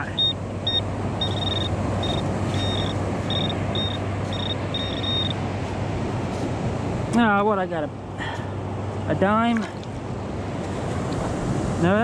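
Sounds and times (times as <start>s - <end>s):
metal detector high beeps: 0.0s - 5.4s.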